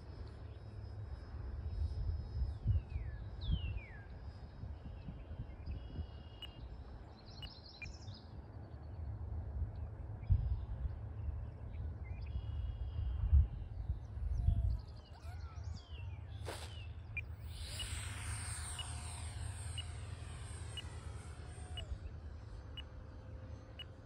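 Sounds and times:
model airplane motor whine: 16.3s - 24.0s.

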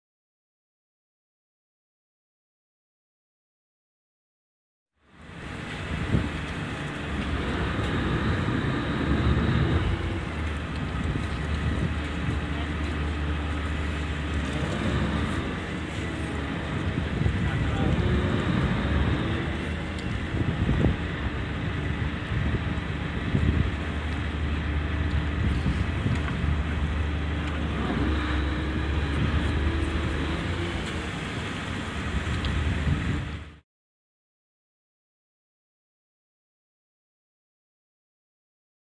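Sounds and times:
wind: 4.9s - 33.6s
diesel engines droning: 5.0s - 33.6s
water noise: 5.0s - 33.6s.

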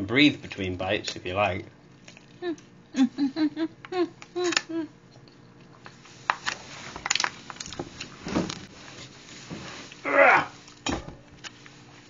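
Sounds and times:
food handling clicks and rustles: 5.2s - 10.0s.

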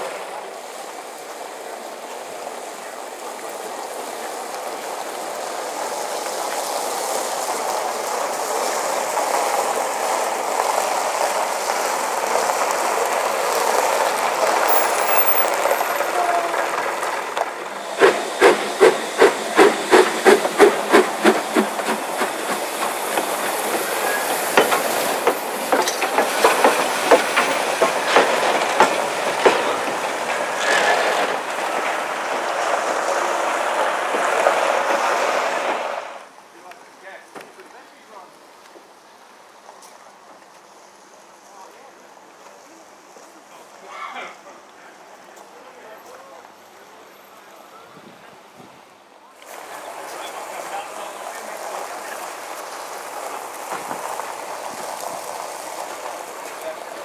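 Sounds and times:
steam locomotive beats: 0.0s - 36.3s
hiss of steam: 0.0s - 36.4s, 49.4s - 57.0s
steady hiss: 0.0s - 46.0s, 49.4s - 57.0s.

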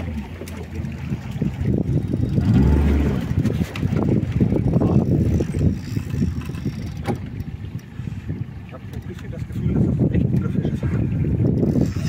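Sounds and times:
wind buffeting microphone: 0.0s - 12.0s.

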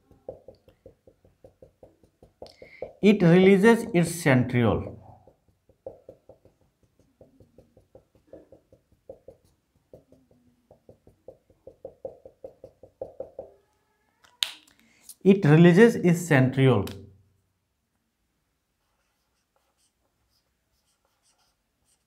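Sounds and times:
marker tapping on whiteboard: 0.0s - 3.6s, 5.2s - 13.6s.

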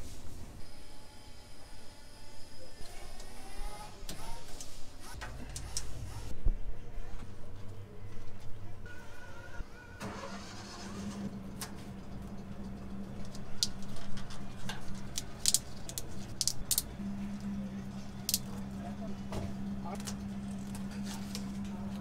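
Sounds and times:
steady low hum: 11.3s - 22.0s
clicks and rattles of plastic tubing: 13.2s - 16.9s.

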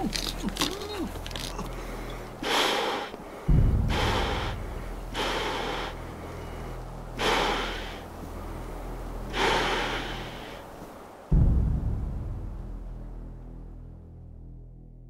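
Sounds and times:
hissing breaths through gas mask: 0.0s - 11.2s
low steady hum: 0.0s - 15.0s.

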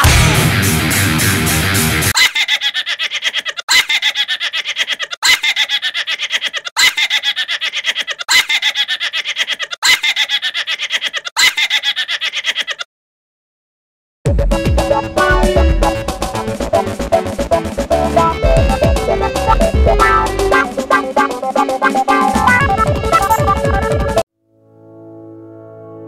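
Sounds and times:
snickering laugh: 2.2s - 12.9s.

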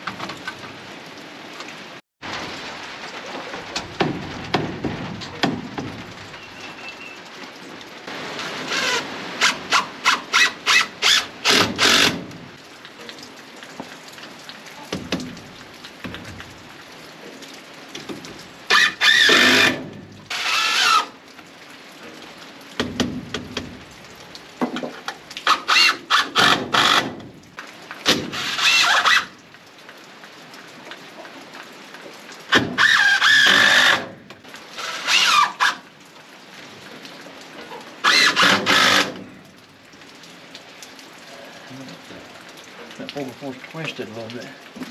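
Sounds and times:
cordless drill driving screws: 8.7s - 12.2s, 18.7s - 21.1s, 32.8s - 34.1s, 38.1s - 39.2s.

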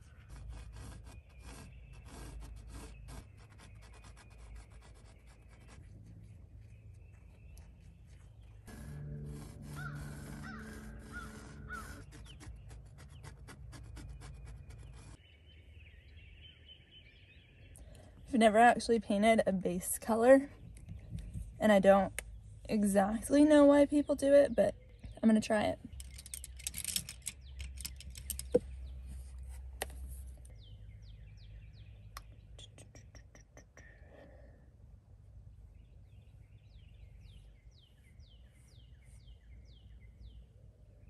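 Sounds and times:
pencil scratching on canvas: 0.0s - 5.8s, 8.7s - 15.2s
low steady rumble: 0.0s - 15.2s
birds chipping: 0.0s - 18.8s, 20.3s - 29.4s
faint bird calls: 9.7s - 13.4s.

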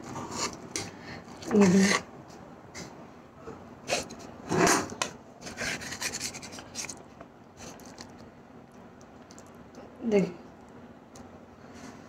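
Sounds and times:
utensil scraping metal pot: 1.4s - 2.1s, 3.9s - 7.0s.

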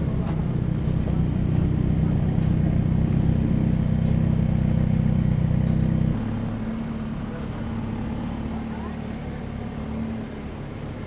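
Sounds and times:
car engine and exhaust running: 0.0s - 11.0s.

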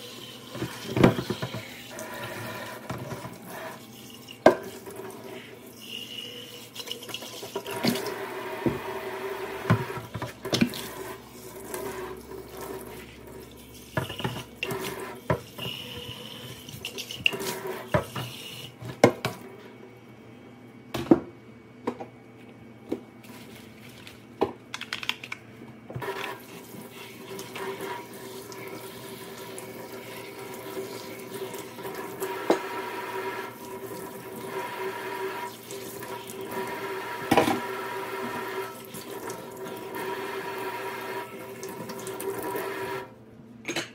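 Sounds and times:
plastic knocking against sink: 0.6s - 1.7s.

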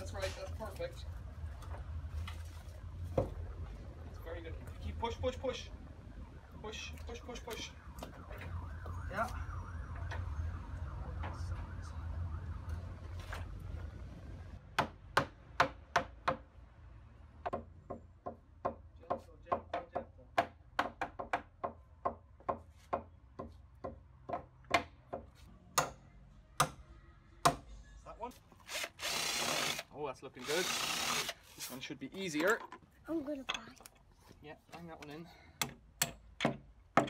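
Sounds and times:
faint wavering siren-like tone: 5.2s - 14.4s
hammer striking timber: 14.7s - 16.5s, 17.4s - 26.0s, 26.6s - 26.8s, 27.4s - 27.7s, 35.6s - 37.0s.

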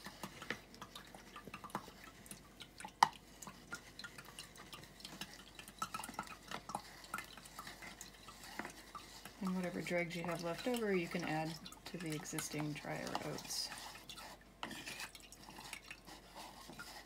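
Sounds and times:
spoon scraping plastic strainer: 3.5s - 17.0s.

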